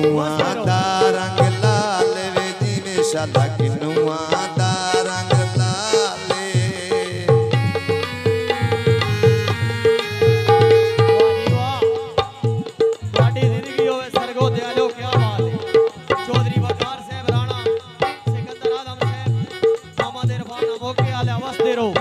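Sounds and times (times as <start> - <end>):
tabla playing: 0.0 - 22.0
wavering melody line: 7.7 - 12.2.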